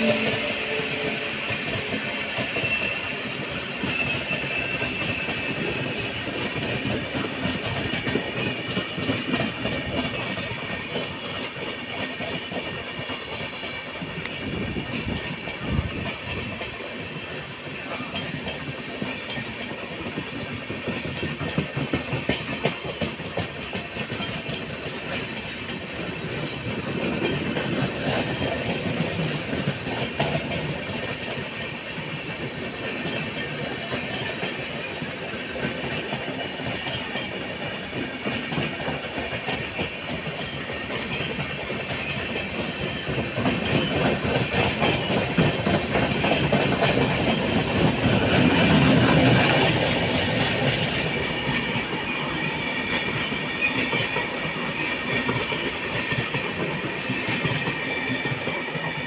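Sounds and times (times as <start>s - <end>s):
train coaches rumbling past: 0.0s - 59.0s
wheels clicking over rail joints: 17.9s - 59.0s.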